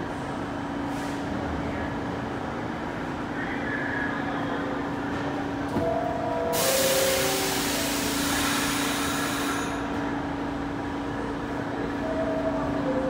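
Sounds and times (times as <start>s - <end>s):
subway train humming: 0.0s - 13.0s
loud hiss of air: 6.6s - 9.8s.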